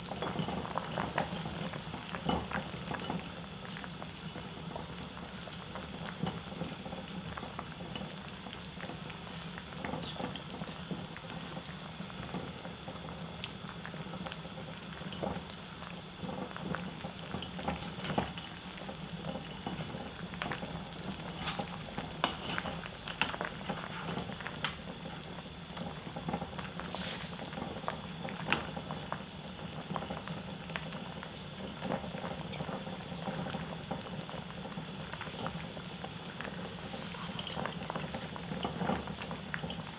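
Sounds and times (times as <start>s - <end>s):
stew bubbling in a pot: 0.0s - 39.9s
wooden spoon stirring with clicks: 16.4s - 29.2s, 29.9s - 39.9s.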